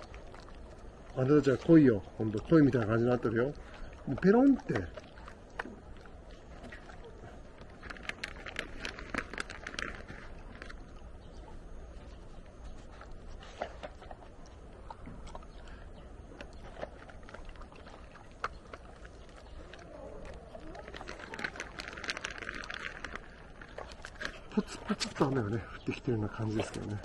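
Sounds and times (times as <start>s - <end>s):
dogs chewing treats: 0.0s - 27.0s
plastic bag crinkling: 6.7s - 10.9s, 16.8s - 25.4s.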